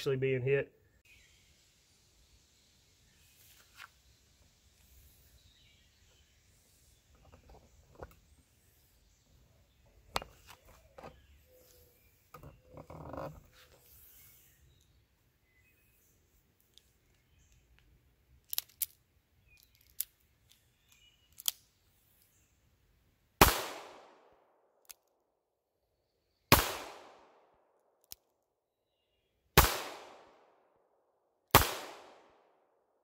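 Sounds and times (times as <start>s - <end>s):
revolver gunshots: 23.4s - 24.3s, 26.5s - 27.4s, 29.6s - 30.4s, 31.5s - 32.4s.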